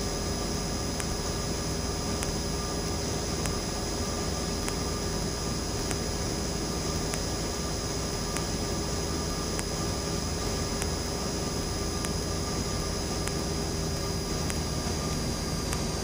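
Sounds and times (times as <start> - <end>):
airplane engine and propeller droning: 0.0 - 16.0
faint ticks: 2.1 - 2.4, 4.6 - 4.9, 7.0 - 7.3, 8.3 - 8.6, 10.8 - 11.0, 12.0 - 12.2.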